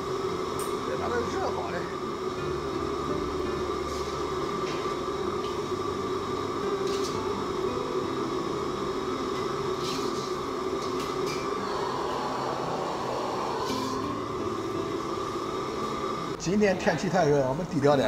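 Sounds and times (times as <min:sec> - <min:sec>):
mechanical roar: 0:11.2 - 0:14.8.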